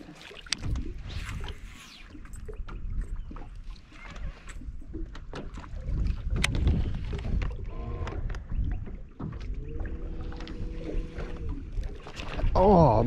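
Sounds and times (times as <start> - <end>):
water slapping a boat hull: 0.0 - 13.0.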